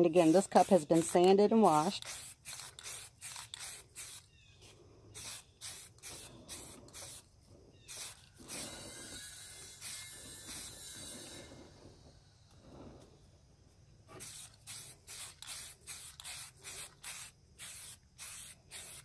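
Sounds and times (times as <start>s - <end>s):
aerosol can spraying: 0.0s - 4.3s, 5.1s - 7.3s, 7.9s - 11.5s, 14.1s - 19.0s.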